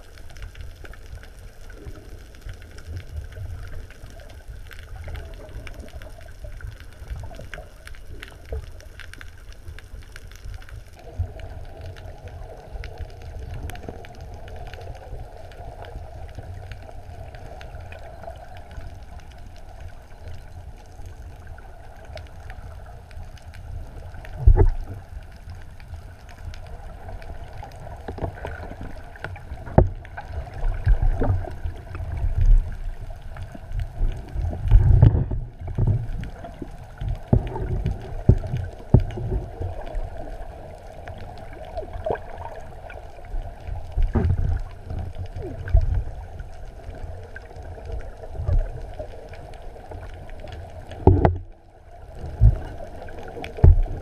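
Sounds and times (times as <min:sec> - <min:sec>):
underwater hum with rushing water: 0:00.0 - 0:54.0
water buffeting camera thuds: 0:44.1 - 0:44.6, 0:51.0 - 0:51.4.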